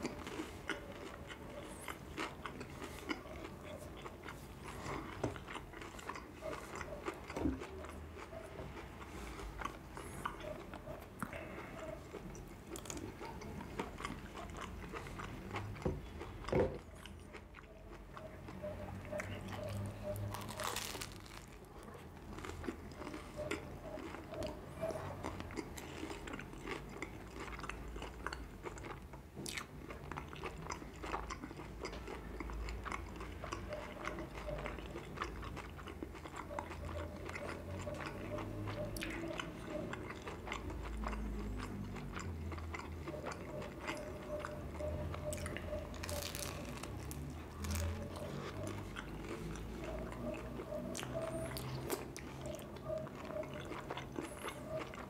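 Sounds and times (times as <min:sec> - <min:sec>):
chewing and biting sandwich: 0:00.0 - 0:55.0
crunchy bites: 0:19.2 - 0:24.2, 0:45.1 - 0:49.7.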